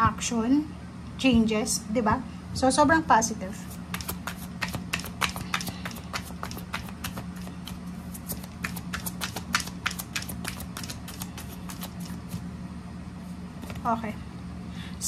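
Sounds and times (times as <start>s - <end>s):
cards being shuffled: 3.6s - 12.5s.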